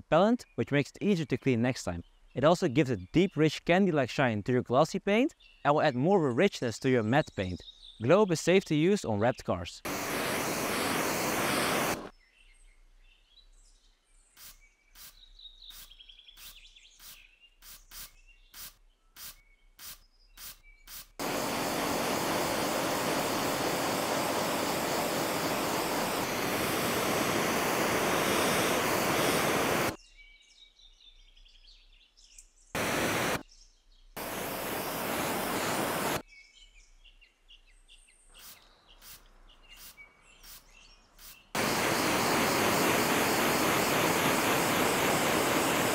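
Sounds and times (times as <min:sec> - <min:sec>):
birds chirping faintly: 0:00.0 - 0:45.9
pressure washer spraying water: 0:09.9 - 0:12.1, 0:17.0 - 0:30.0, 0:32.8 - 0:33.4, 0:34.2 - 0:36.2, 0:41.6 - 0:45.9.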